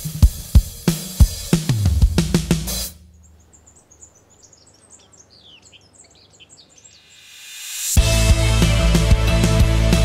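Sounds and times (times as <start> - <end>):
small birds chirping: 0.0 - 7.9.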